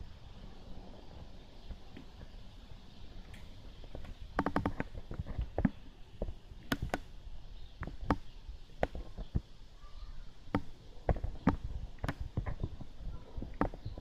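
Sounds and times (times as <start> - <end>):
sharp clicks and taps: 3.3 - 7.1.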